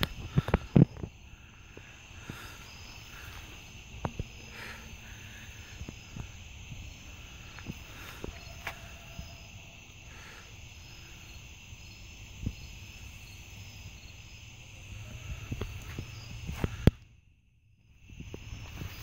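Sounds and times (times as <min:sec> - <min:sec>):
crackle: 0:00.0 - 0:06.4, 0:15.3 - 0:19.0
crickets chirping: 0:00.0 - 0:19.0.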